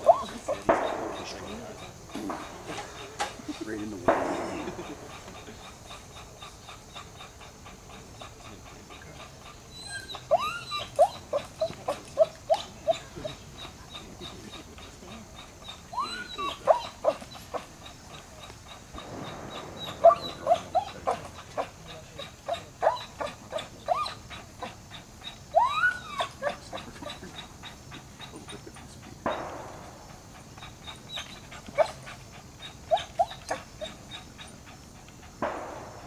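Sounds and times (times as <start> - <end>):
dog whining in high-pitched yelps: 0.0 - 1.8, 9.4 - 28.3, 30.4 - 34.8.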